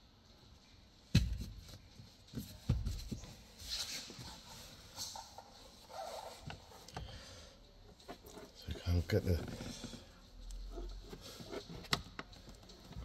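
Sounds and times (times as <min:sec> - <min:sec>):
plastic scraping and rustling: 0:08.0 - 0:13.0.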